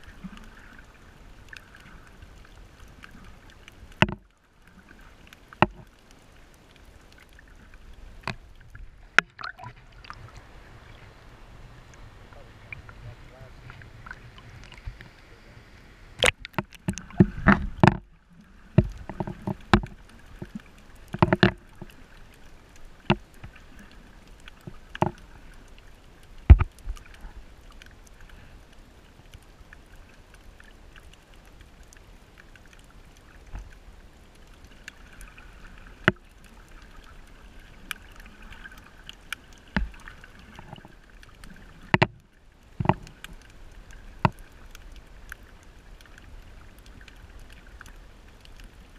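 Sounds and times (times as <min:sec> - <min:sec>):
muffled underwater hiss: 0:00.0 - 0:48.9
water splashing and sloshing: 0:00.0 - 0:48.9
sharp underwater clicks and knocks: 0:01.5 - 0:04.4, 0:05.2 - 0:10.2, 0:16.2 - 0:28.1, 0:32.6 - 0:33.8, 0:36.0 - 0:48.8.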